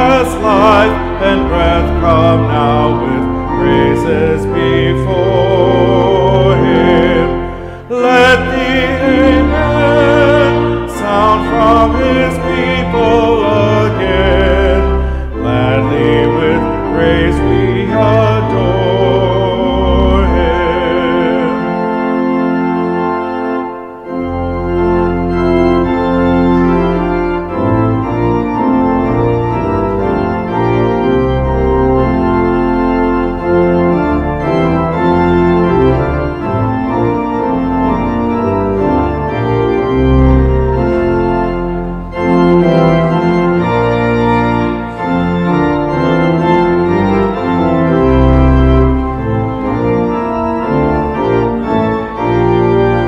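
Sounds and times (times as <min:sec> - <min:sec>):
church organ playing chords: 0:00.0 - 0:53.0.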